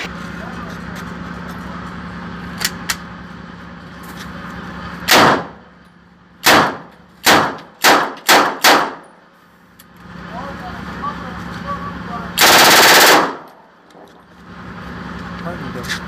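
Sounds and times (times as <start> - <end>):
submachine gun single shots: 5.1 - 5.6, 6.4 - 9.1, 12.4 - 13.6.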